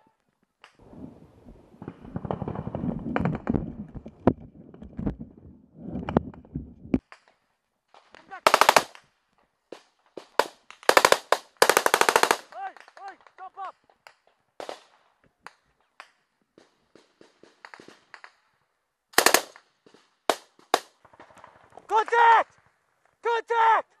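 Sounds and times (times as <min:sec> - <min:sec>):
automatic gunfire bursts: 0:08.4 - 0:09.0, 0:10.4 - 0:12.5, 0:19.2 - 0:19.6.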